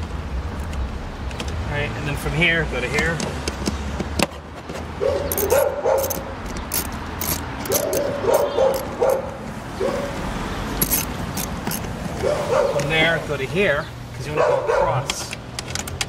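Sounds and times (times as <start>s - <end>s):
hand tool clicks and clinks: 5.3s - 9.3s, 10.8s - 12.0s, 15.1s - 16.0s.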